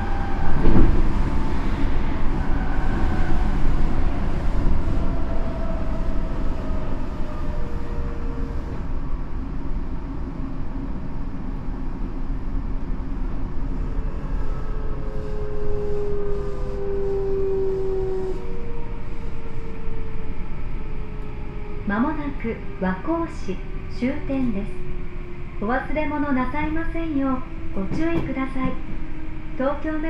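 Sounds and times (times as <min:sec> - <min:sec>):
train wheels rumbling on rail: 0:00.0 - 0:30.0
train motor whine: 0:14.0 - 0:23.2.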